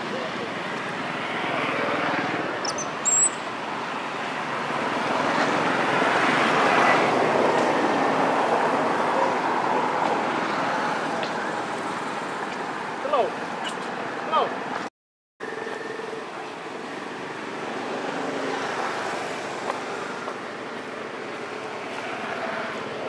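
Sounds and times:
high-pitched chirp: 0:02.6 - 0:03.5.

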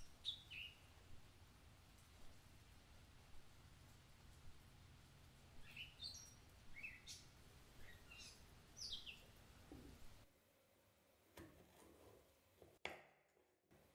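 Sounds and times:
faint bird chirps: 0:00.0 - 0:00.9, 0:05.6 - 0:09.3
low steady hum: 0:00.0 - 0:11.4.

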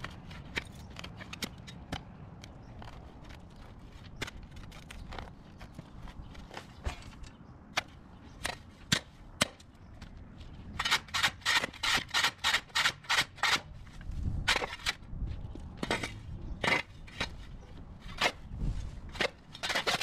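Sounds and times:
shovel chopping grass: 0:06.8 - 0:09.7.

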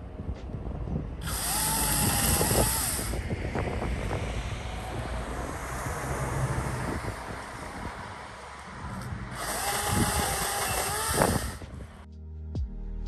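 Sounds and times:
wind noise on microphone: 0:00.0 - 0:12.1
cordless chainsaw motor whine: 0:01.2 - 0:03.9, 0:06.1 - 0:12.0.

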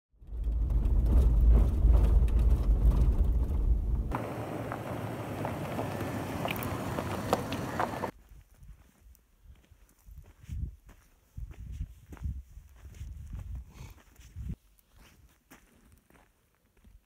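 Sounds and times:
vehicle low rumble: 0:00.2 - 0:08.1
tyres hissing on gravel: 0:04.1 - 0:08.1.

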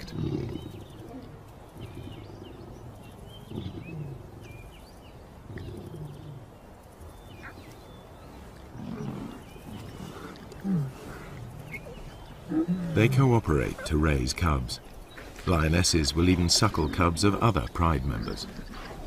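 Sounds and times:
lions growling: 0:00.0 - 0:06.6, 0:07.2 - 0:19.0.

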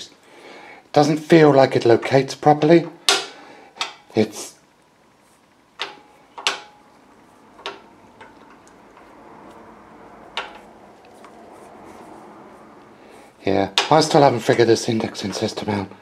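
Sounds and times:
faint metal rubbing: 0:05.2 - 0:13.4.

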